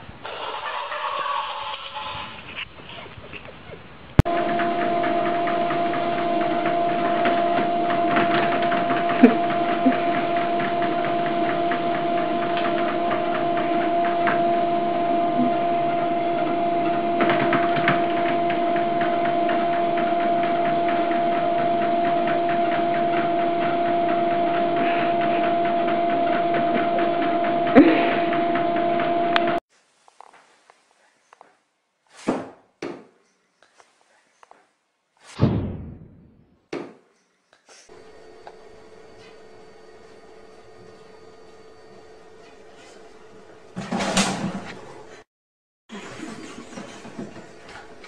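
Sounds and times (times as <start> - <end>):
treadmill motor hum and whine: 4.2 - 29.6, 37.9 - 45.2.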